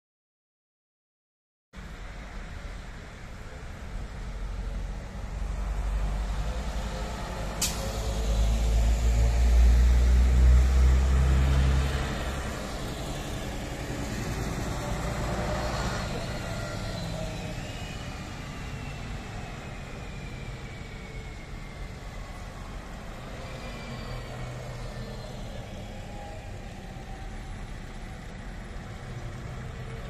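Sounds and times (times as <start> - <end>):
bus diesel rumble: 1.8 - 30.0
passing road traffic: 1.8 - 30.0
air hiss: 7.6 - 8.5.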